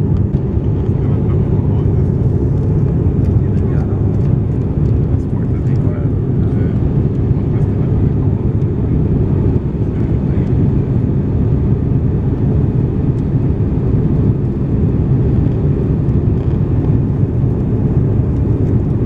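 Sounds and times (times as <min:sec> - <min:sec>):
airliner engine roar in cabin: 0:00.0 - 0:19.0.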